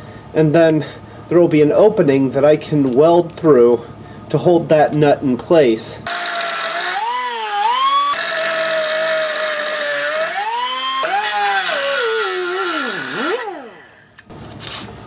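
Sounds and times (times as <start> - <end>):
angle grinder cutting steel: 6.1 - 14.2.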